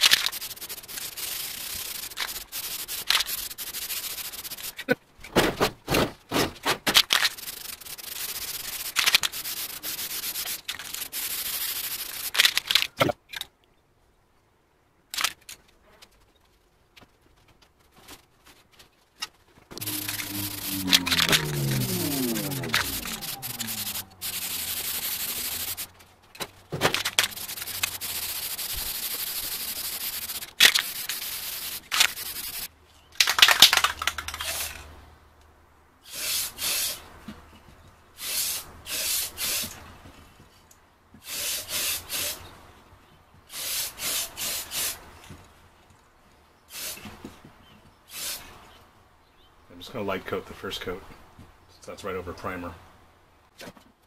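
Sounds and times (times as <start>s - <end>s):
spray paint can hissing: 0.0s - 4.8s, 7.2s - 12.4s, 19.8s - 25.9s, 27.0s - 32.7s, 36.1s - 37.0s, 38.2s - 39.7s, 41.2s - 42.4s, 43.5s - 45.0s, 46.7s - 47.0s, 48.1s - 48.5s.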